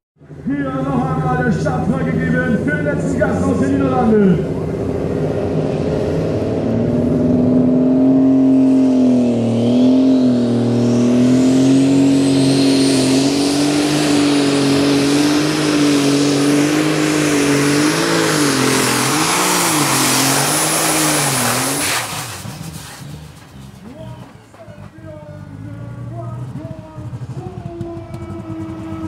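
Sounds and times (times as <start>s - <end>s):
diesel engine running hard: 0.2s - 29.0s.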